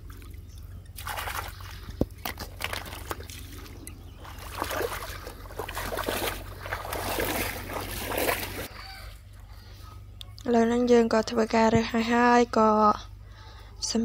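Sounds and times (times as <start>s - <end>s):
water sloshing and trickling: 0.0s - 8.7s.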